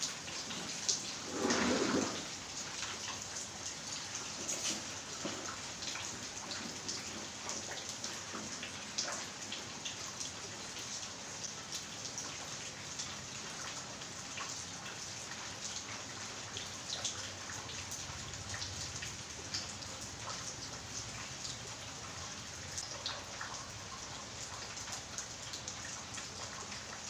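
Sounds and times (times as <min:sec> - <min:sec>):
rain pattering: 0:00.0 - 0:27.0.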